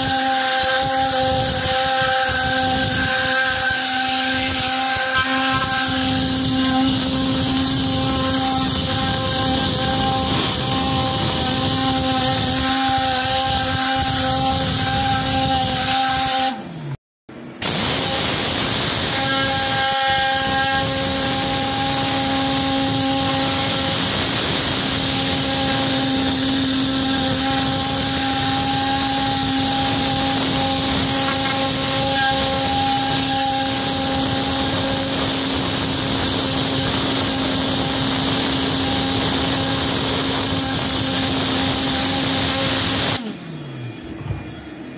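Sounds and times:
compressed air gun hissing: 0.0s - 16.6s, 17.6s - 43.3s
steady hum: 16.5s - 44.9s.

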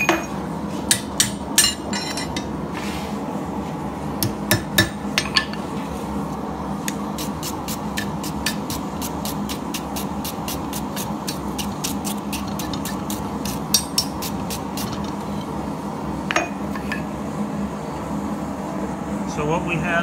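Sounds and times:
steady low hum: 0.0s - 20.0s
hammer striking steel punch: 4.2s - 5.4s.

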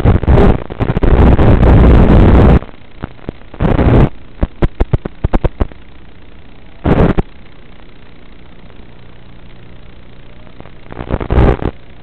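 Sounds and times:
static hiss bursts: 0.0s - 12.0s
sharp crackling clicks: 2.5s - 5.8s.

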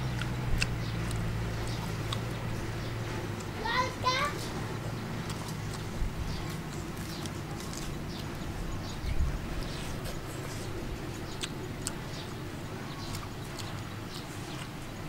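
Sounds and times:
steady low hum: 0.0s - 15.0s
mouth clicks and lip-smacking: 0.1s - 2.5s, 9.0s - 12.4s.

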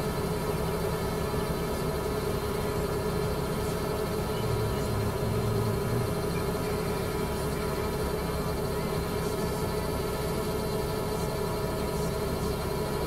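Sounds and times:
drone propellers humming: 3.5s - 13.0s.

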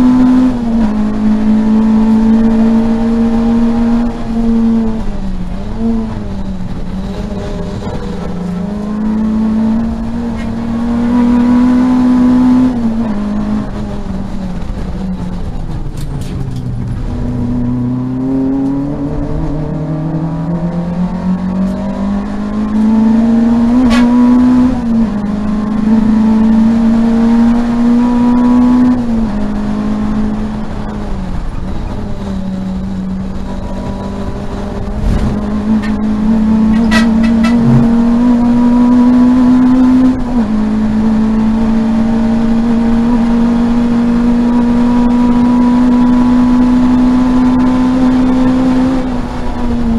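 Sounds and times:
race car engine under load: 0.0s - 49.9s.

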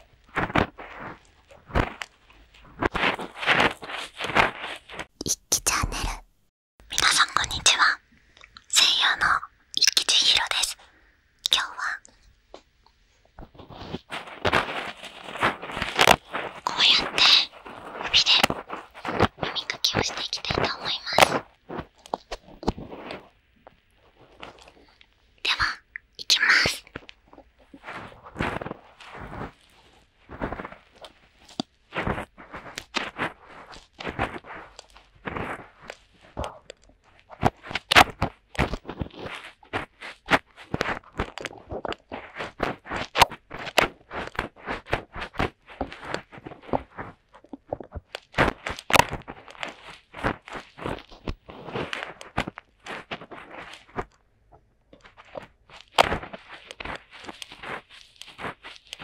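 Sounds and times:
fingertips scratching microphone: 0.0s - 6.2s, 13.4s - 23.3s, 25.5s - 54.1s.

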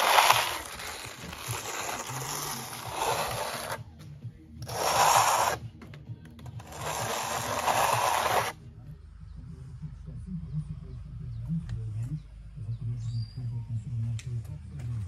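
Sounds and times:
trowel scraping wet cement: 0.0s - 3.8s, 4.6s - 5.6s, 6.6s - 8.6s.

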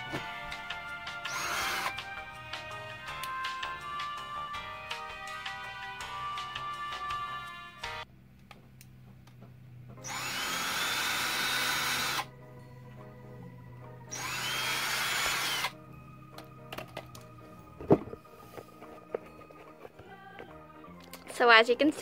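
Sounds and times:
cordless drill whining: 0.0s - 4.7s, 10.0s - 12.3s, 14.1s - 15.8s.

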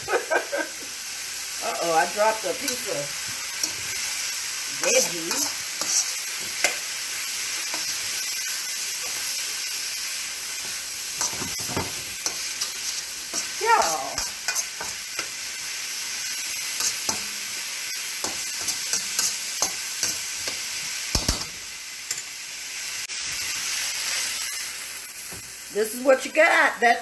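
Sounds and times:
stir fry sizzling in a wok: 0.0s - 27.0s
utensil scraping a pan: 4.8s - 6.8s, 10.6s - 15.3s.

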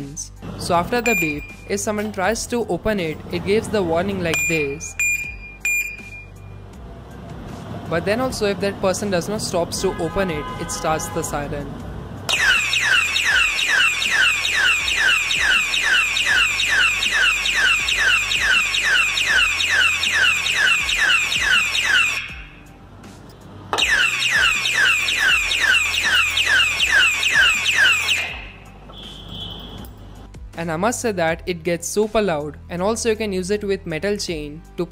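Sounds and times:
electronic alarm siren: 1.1s - 1.6s, 12.3s - 22.6s, 23.8s - 29.8s.

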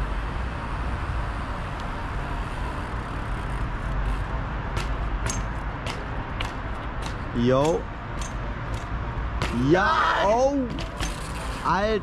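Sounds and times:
distant street traffic: 0.0s - 12.0s
low outdoor rumble: 0.0s - 12.0s
bicycle wheel knocking on stone steps: 4.8s - 9.7s.

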